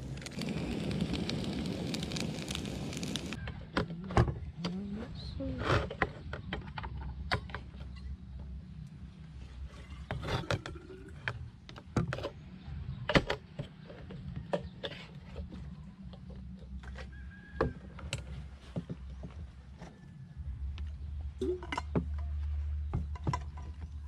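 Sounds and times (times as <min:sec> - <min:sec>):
steady low rumble: 0:00.0 - 0:03.4.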